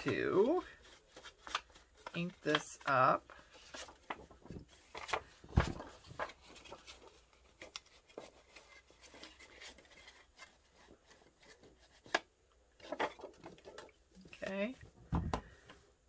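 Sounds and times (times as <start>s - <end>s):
paper rustling: 0.0s - 12.2s, 12.8s - 14.4s
thump: 15.1s - 15.5s.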